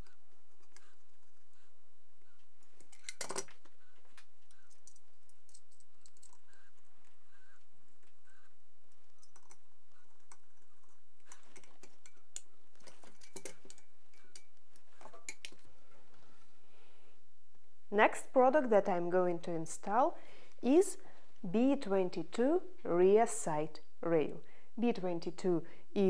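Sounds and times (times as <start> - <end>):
screwdriver clicking on metal: 11.2 - 14.5.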